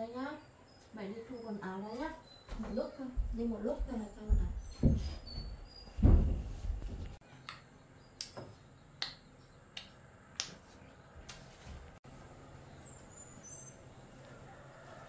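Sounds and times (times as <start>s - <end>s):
low thump: 6.0s - 6.6s.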